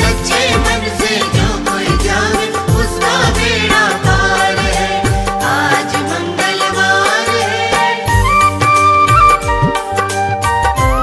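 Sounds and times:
steady drum beat: 0.0 - 6.8
wavering melody: 8.0 - 10.2.

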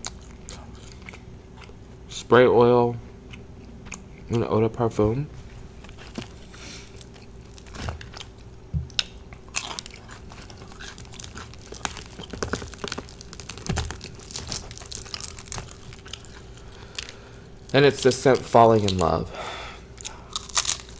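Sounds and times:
crunching and chewing: 0.0 - 2.1, 3.3 - 4.5, 5.5 - 19.2, 19.9 - 20.9
crisp breading crackling: 5.8 - 19.3, 20.0 - 20.9.

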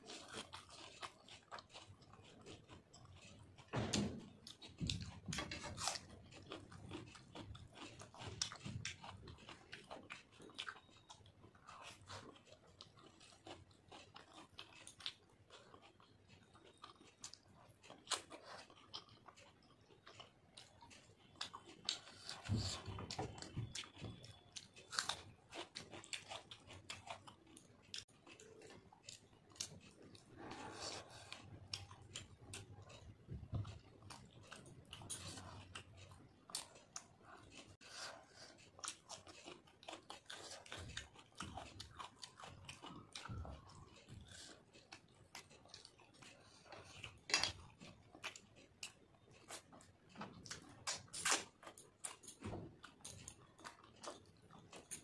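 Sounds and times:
wet chewing and lip smacking: 0.0 - 55.0.

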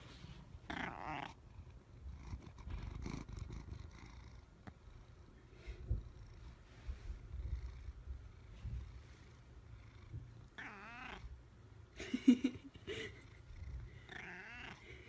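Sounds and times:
cat purring: 0.0 - 11.4, 13.1 - 15.0
cat meowing: 10.6 - 11.3, 14.1 - 14.8.

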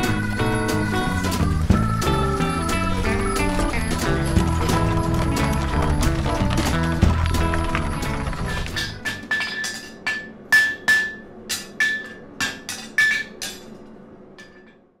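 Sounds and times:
hammer striking metal: 8.8 - 14.9.

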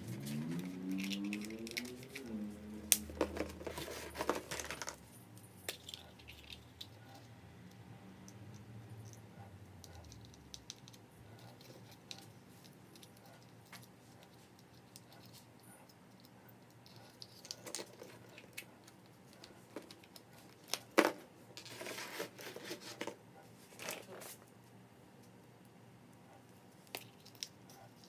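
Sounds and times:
plastic eggs clattering: 2.9 - 5.1
plastic eggs clicking and tapping: 9.8 - 21.1.

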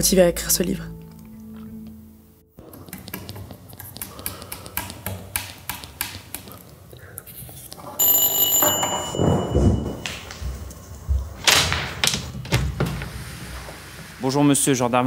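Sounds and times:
electronic doorbell ringing: 8.0 - 10.8.

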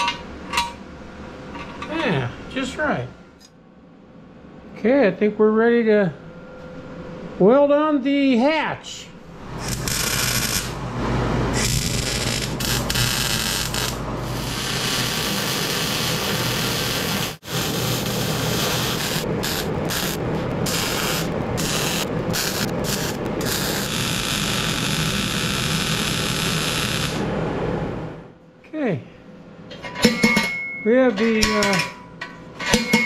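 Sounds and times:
welder arc crackling: 9.5 - 10.8, 11.5 - 27.2.

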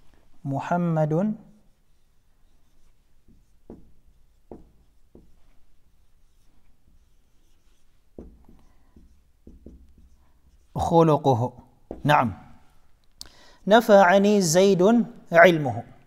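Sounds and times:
marker writing on whiteboard: 1.3 - 13.0
marker tip tapping board: 3.2 - 5.6, 6.8 - 10.7.

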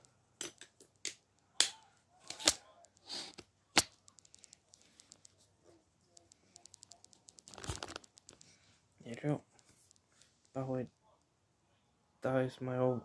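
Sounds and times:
faint light ticks: 6.1 - 11.1.

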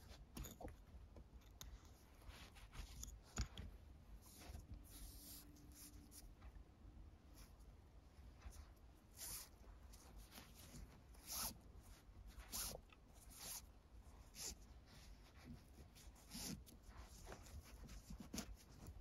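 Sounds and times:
cord swishing through loops: 8.3 - 14.6.

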